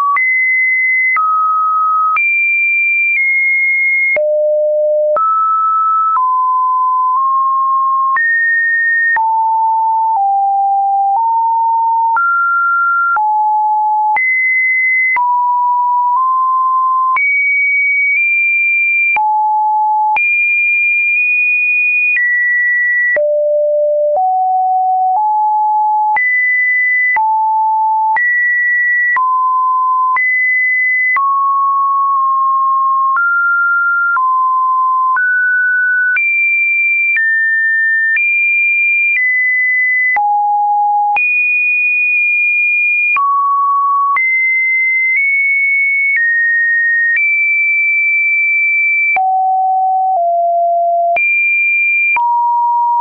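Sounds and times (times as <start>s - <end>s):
sine wave test beeps: 3.2s - 8.4s, 23.1s - 26.3s, 29.1s - 36.2s, 39.7s - 41.2s, 49.0s - 51.2s, 52.1s - 53.0s.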